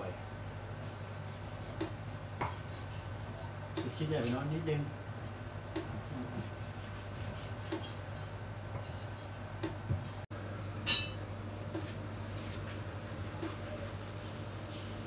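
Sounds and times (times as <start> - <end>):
steady low hum: 0.0 - 15.0
knife cutting on wooden board: 5.8 - 8.0
metallic clink from a pot: 10.8 - 11.2.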